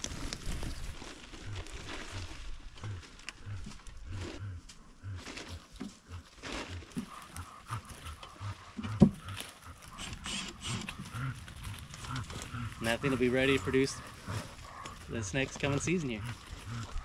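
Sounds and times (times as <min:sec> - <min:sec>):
dog panting: 0:06.9 - 0:17.0.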